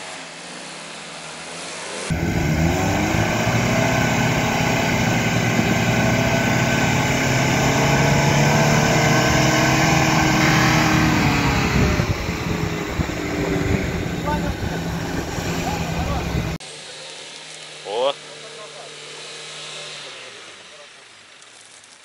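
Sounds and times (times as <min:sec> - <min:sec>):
car engine revving: 0:00.0 - 0:16.6.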